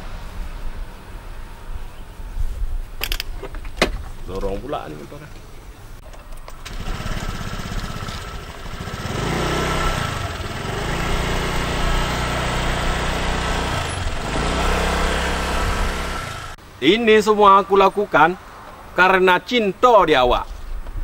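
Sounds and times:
scooter engine revving: 6.4s - 16.6s.

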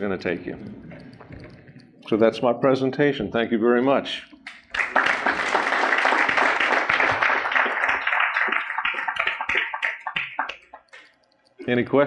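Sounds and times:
audience applauding: 4.5s - 10.8s.

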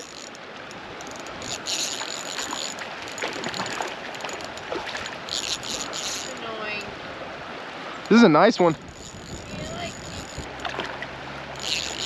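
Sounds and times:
fishing reel ratchet whirring: 0.0s - 6.5s, 8.8s - 10.8s, 11.5s - 12.0s
stream rushing: 0.0s - 12.0s.

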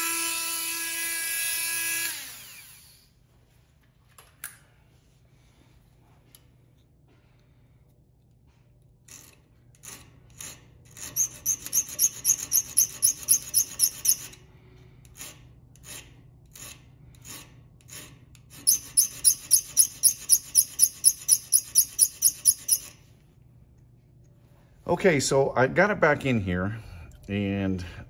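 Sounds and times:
hand file rasping on steel: 10.9s - 14.3s, 15.2s - 22.9s.

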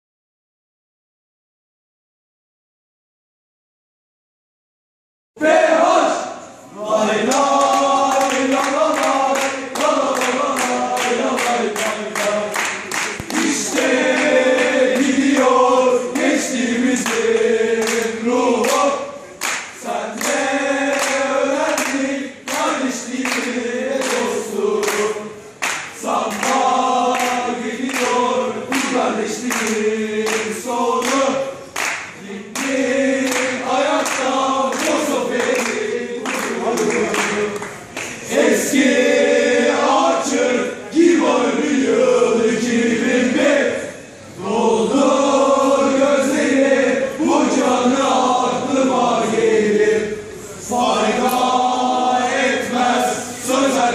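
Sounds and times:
men chanting in unison: 5.4s - 19.2s, 19.8s - 31.6s, 32.2s - 37.6s, 38.2s - 53.9s
rhythmic handclaps: 6.9s - 43.6s, 50.8s - 53.9s.

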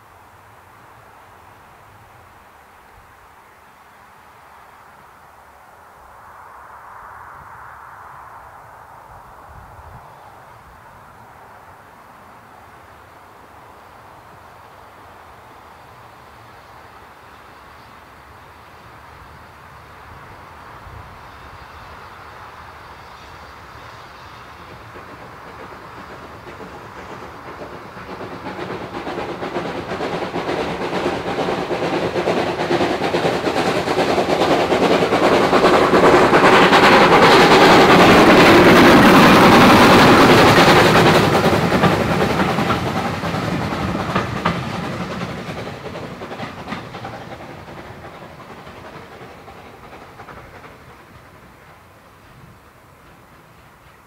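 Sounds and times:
steam locomotive exhaust beat: 15.2s - 54.0s
train wheels clattering over rail joints: 24.3s - 54.0s.

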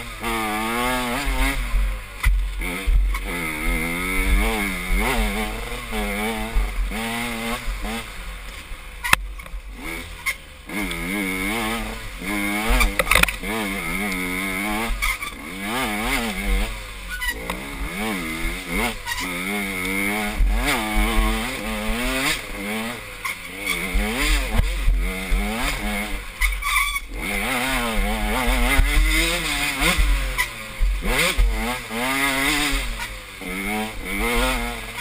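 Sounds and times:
dirt bike engine revving: 0.0s - 35.0s.

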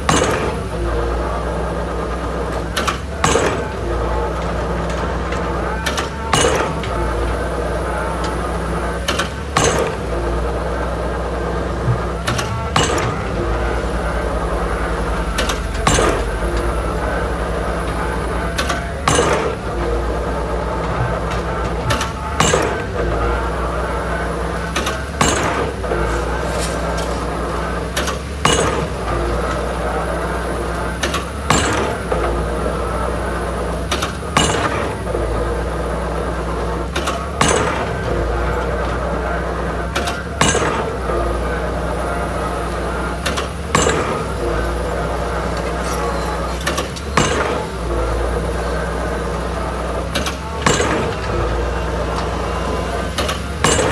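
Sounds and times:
drop hammer striking pile: 0.0s - 0.8s, 2.5s - 7.4s, 8.2s - 10.5s, 11.5s - 23.5s, 24.6s - 29.7s, 30.9s - 32.3s, 33.9s - 35.0s, 36.9s - 39.0s, 40.0s - 41.1s, 43.2s - 48.8s, 50.1s - 53.9s
machine engine running: 0.0s - 53.9s.

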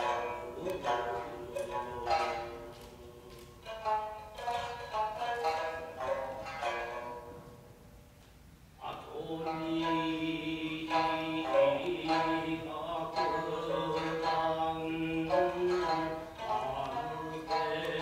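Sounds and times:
person chanting long sung notes: 0.0s - 3.9s, 8.8s - 18.0s
shamisen plucking: 0.0s - 8.2s, 8.8s - 18.0s.

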